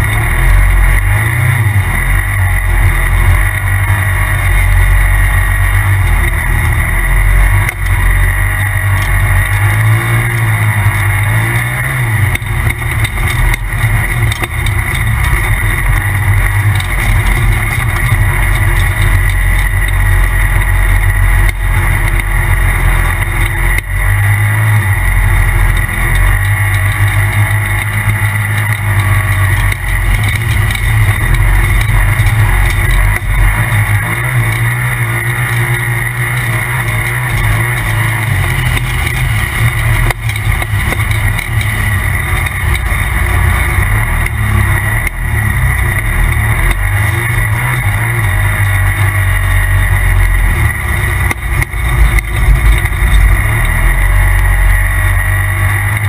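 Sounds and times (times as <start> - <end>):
high turbo whine: 0.0 - 56.0
off-road vehicle engine revving: 0.0 - 56.0.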